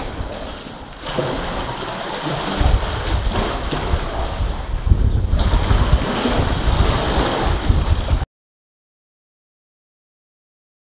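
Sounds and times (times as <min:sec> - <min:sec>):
sea water sloshing against rocks: 0:00.0 - 0:08.2
wind rumble on microphone: 0:00.0 - 0:08.3.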